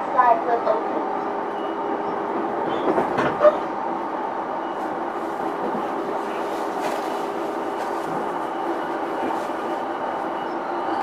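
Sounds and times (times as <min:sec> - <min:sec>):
train cabin rumble: 0:00.0 - 0:11.0.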